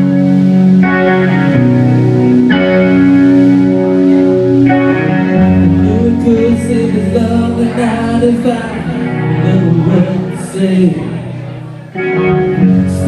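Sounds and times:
acoustic guitar strumming: 0:00.0 - 0:13.0
man singing into a microphone: 0:05.5 - 0:11.8, 0:12.5 - 0:13.0.

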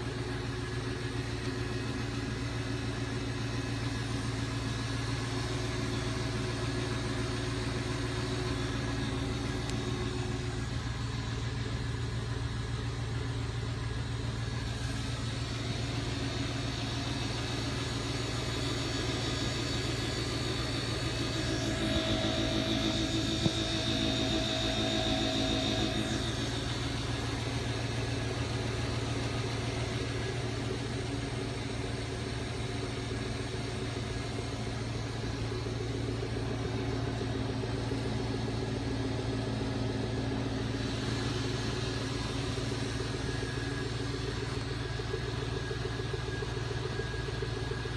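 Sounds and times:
rotator motor humming: 0:14.3 - 0:46.3.

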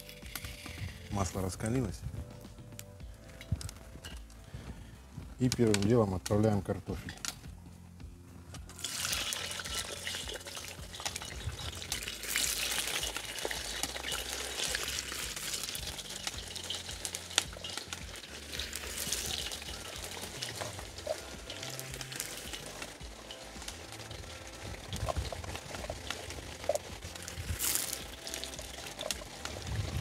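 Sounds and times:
potatoes frying in oil: 0:08.6 - 0:30.0.

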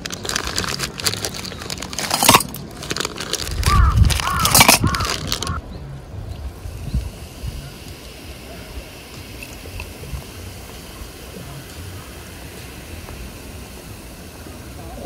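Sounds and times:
drink pouring: 0:00.0 - 0:05.6, 0:06.7 - 0:15.0
ice cubes clicking in cups: 0:00.0 - 0:05.6.

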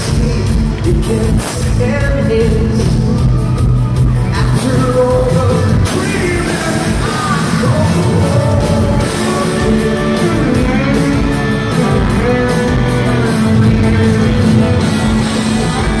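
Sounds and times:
man singing into a microphone: 0:00.0 - 0:03.5, 0:04.3 - 0:16.0
drums: 0:00.0 - 0:16.0
electric guitar: 0:00.0 - 0:16.0.

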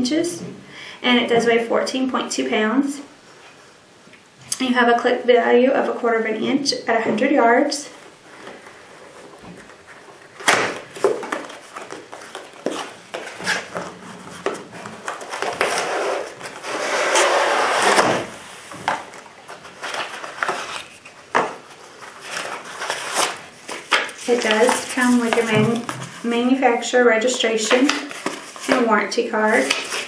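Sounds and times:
cardboard sliding scrape: 0:11.0 - 0:19.0.

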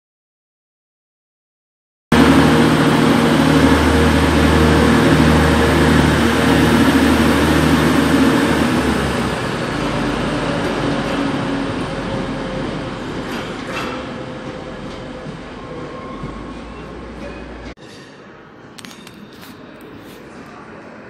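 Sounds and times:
diesel train engines running: 0:02.1 - 0:17.8.

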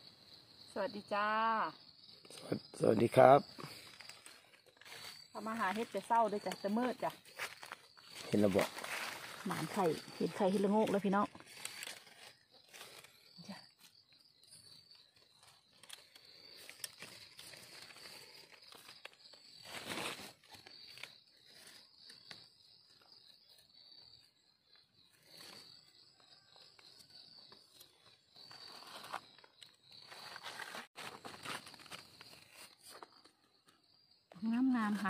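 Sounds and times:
faint insects chirping: 0:00.0 - 0:35.0
hands and knife scraping soil: 0:03.7 - 0:14.1, 0:15.2 - 0:24.0, 0:26.8 - 0:33.8.

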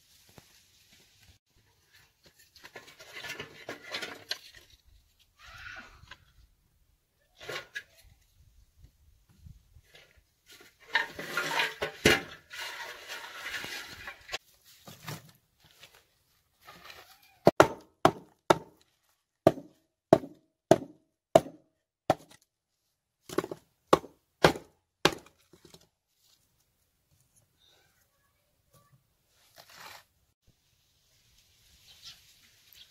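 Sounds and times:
firewood rustling and scraping: 0:00.0 - 0:05.4, 0:09.3 - 0:17.5, 0:25.2 - 0:27.5, 0:29.3 - 0:30.2
sharp wooden knocks: 0:17.5 - 0:18.7.

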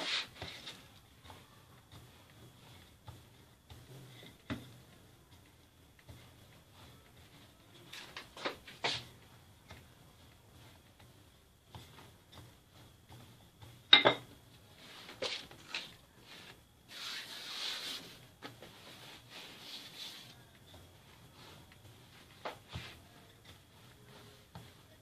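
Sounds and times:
dough sliding on floured surface: 0:00.0 - 0:25.0
rolling pin knocking on counter: 0:11.7 - 0:14.4.

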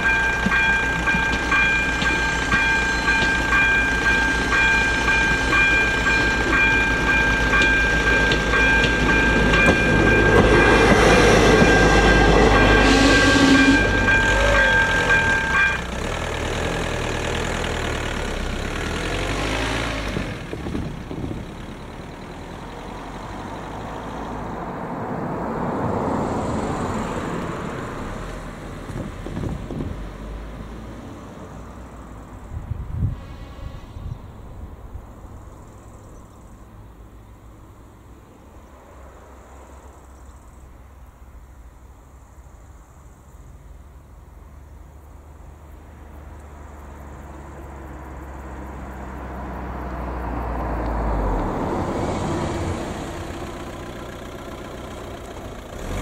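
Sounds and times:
level crossing warning bell: 0:00.0 - 0:16.1
diesel railcar rumble: 0:00.0 - 0:56.0
road vehicle passing: 0:00.0 - 0:56.0.

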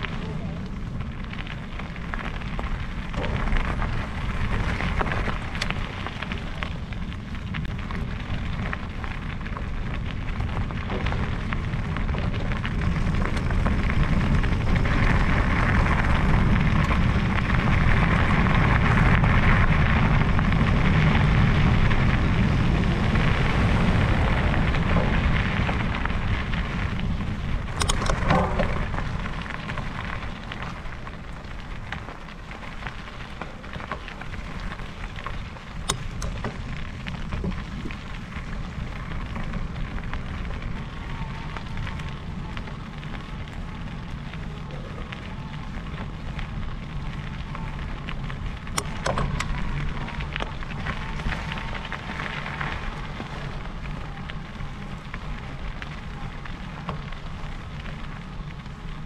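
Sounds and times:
wind rushing over microphone: 0:00.0 - 0:57.6
bike rattling: 0:00.0 - 0:59.0
tyres rumbling on rough track: 0:00.0 - 0:59.0.

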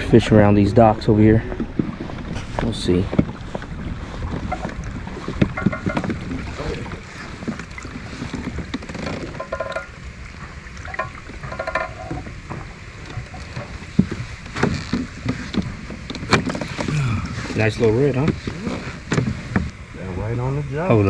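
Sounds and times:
wind rumbling on microphone: 0:00.0 - 0:21.0
sharp knocks: 0:05.4 - 0:06.4, 0:09.0 - 0:10.0.

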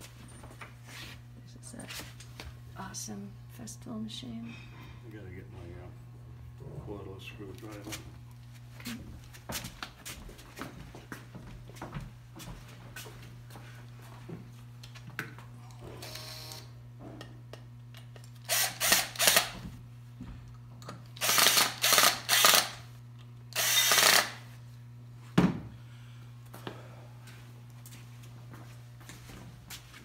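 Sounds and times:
drill driving screws into wood: 0:18.4 - 0:19.6, 0:21.2 - 0:22.9, 0:23.5 - 0:24.4.

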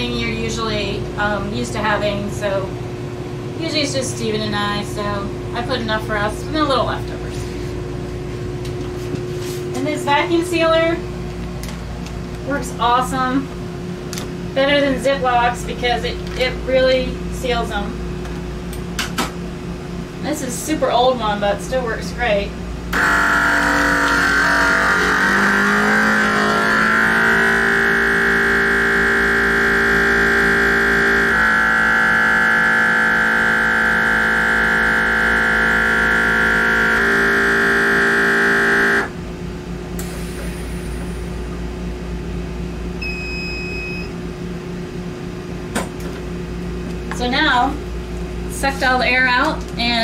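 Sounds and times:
vacuum sealer pump running: 0:22.2 - 0:50.0
short high beep: 0:43.0 - 0:44.1.

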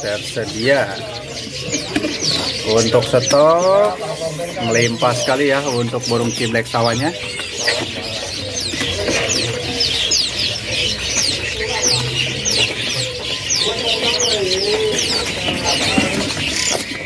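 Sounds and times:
lower wavering bird calls: 0:00.0 - 0:17.0
songbirds chirping: 0:00.0 - 0:17.0.

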